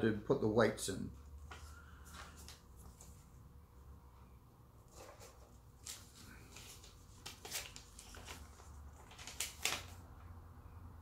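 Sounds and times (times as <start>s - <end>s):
paper leaflet rustling: 1.4s - 3.4s, 4.9s - 10.1s.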